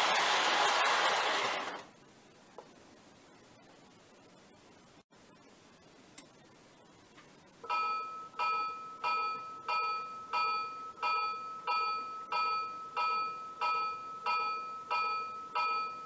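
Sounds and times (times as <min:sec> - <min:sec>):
locomotive bell ringing: 0:07.6 - 0:16.0.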